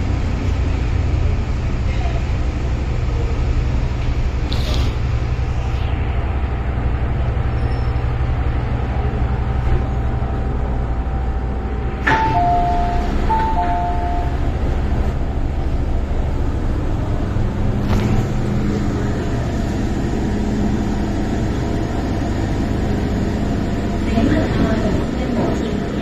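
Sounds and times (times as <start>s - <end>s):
train rumble: 0.0s - 26.0s
two-note chime: 12.1s - 14.4s.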